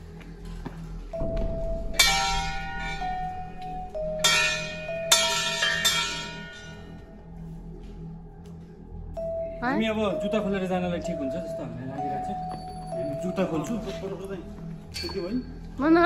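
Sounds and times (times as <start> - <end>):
brass bells ringing: 1.9 - 7.0, 9.4 - 14.3.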